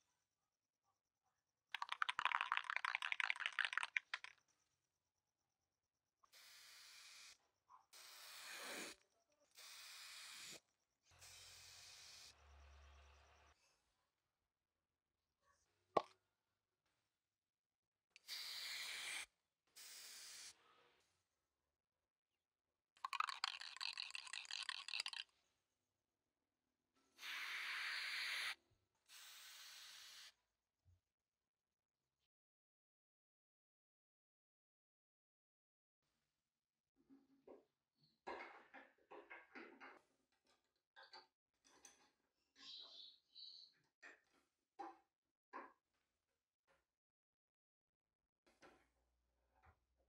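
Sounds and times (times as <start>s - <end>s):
spray can ball rattling: 1.8s - 4.3s, 23.0s - 25.2s
spray can hissing: 18.3s - 19.2s, 27.2s - 30.3s.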